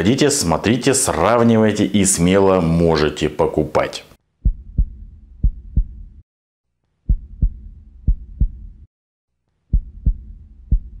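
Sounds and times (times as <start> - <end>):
heartbeat double thumps: 4.4 - 6.2, 7.1 - 8.9, 9.7 - 11.0
low hum: 7.1 - 8.9, 9.7 - 11.0.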